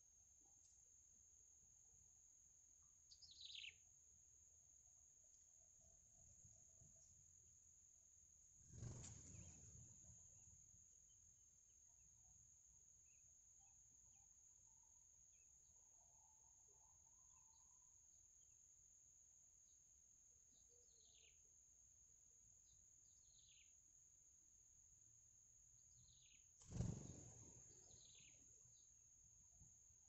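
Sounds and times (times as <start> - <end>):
faint high bird chirps: 2.7 - 4.2, 8.8 - 10.3, 11.0 - 18.9, 19.6 - 24.0, 25.8 - 29.6
high bird calls: 26.7 - 28.4.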